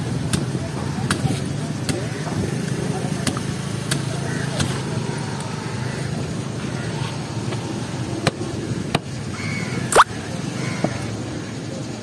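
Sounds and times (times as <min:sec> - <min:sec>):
street background noise: 0:00.0 - 0:12.0.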